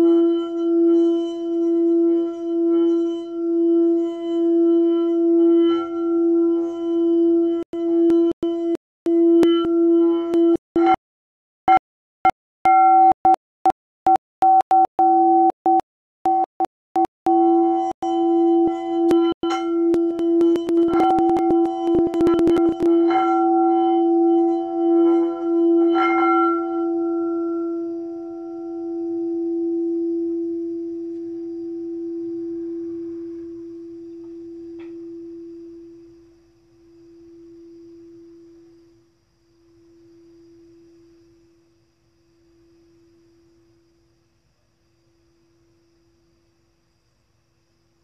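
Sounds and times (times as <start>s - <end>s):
singing bowl ringing: 0.0s - 11.0s, 17.4s - 41.8s.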